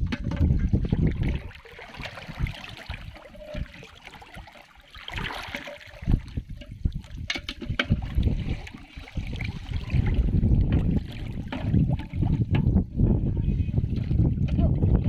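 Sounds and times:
water sloshing and trickling: 0.0 - 15.0
splashes in water: 0.8 - 12.4.

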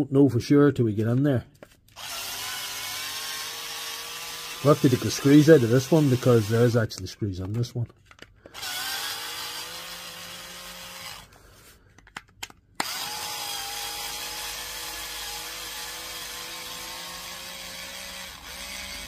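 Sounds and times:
electric screwdriver motor whining: 1.9 - 6.8, 8.4 - 11.4, 12.8 - 19.0.

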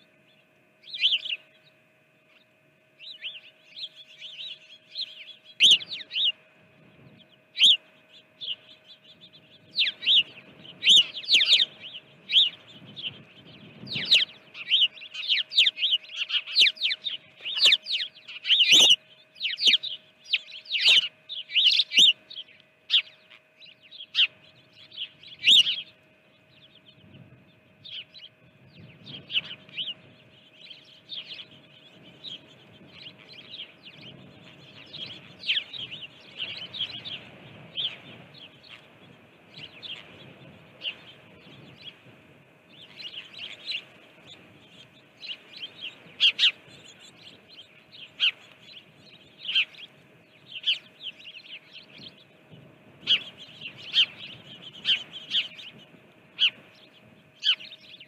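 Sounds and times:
faint steady hum: 0.0 - 58.0
songbirds chirping: 0.0 - 58.0.

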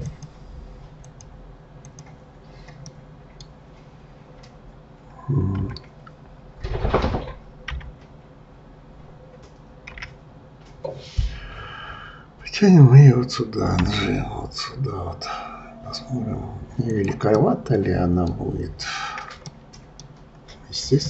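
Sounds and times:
low microphone hum: 0.0 - 9.4, 10.4 - 21.0
keyboard and mouse clicks: 1.0 - 3.5, 5.5 - 6.2, 9.4 - 10.9, 19.1 - 20.6.

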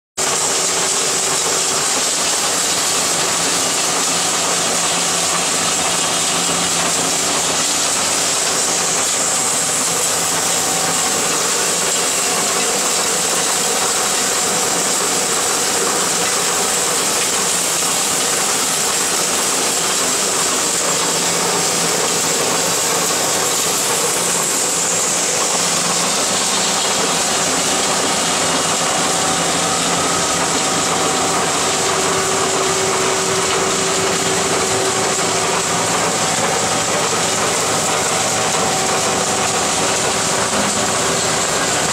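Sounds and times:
soil sifting through screen: 0.2 - 41.9.

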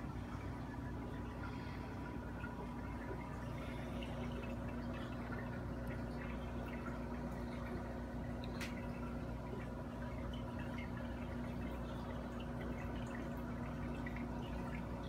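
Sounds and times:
pump hum: 0.0 - 15.0
water trickling and dripping: 0.0 - 15.0.

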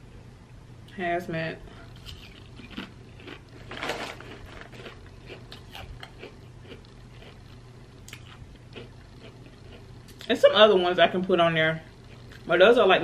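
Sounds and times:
person crunching chips: 1.9 - 10.3.

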